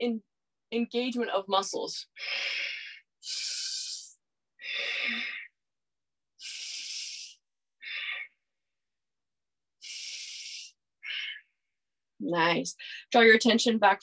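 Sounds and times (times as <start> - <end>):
woman breathing through nose: 2.2 - 5.6, 6.4 - 8.4, 9.8 - 11.5.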